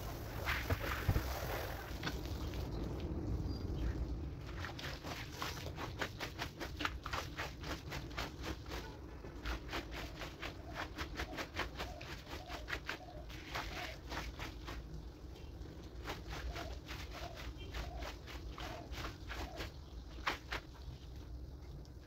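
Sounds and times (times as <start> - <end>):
wet slaps and scrapes: 4.4 - 15.0, 15.8 - 21.0.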